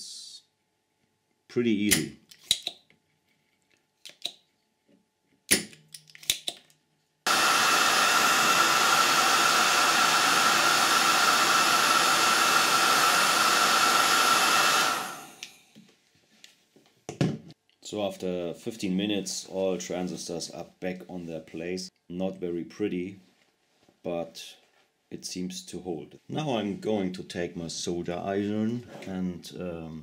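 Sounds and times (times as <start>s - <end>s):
heat gun blowing: 7.3s - 15.7s.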